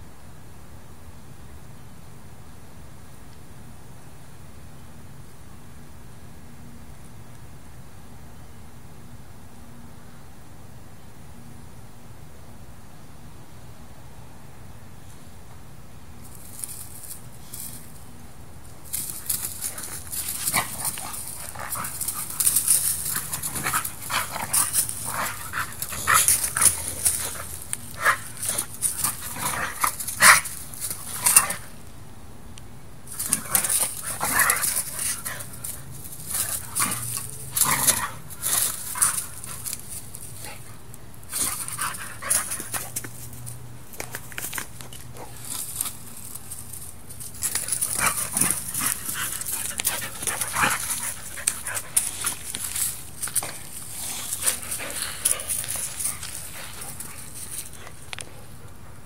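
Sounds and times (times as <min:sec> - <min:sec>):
dogs panting: 0:19.0 - 0:31.7, 0:47.4 - 0:59.0.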